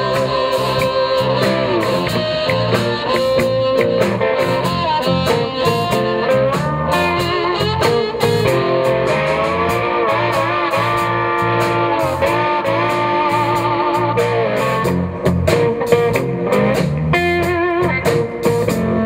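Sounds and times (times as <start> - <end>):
amplified harmonica bending notes: 0.0 - 15.1
drums with cymbal strokes: 0.0 - 19.0
electric guitar: 0.0 - 19.0
walking bass line: 0.0 - 19.0.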